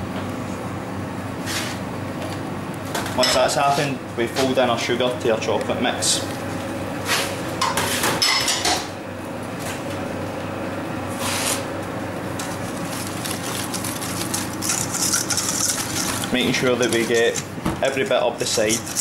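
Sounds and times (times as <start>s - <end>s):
steady background hum: 0.0s - 19.0s
whisk scraping metal bowl: 12.4s - 19.0s.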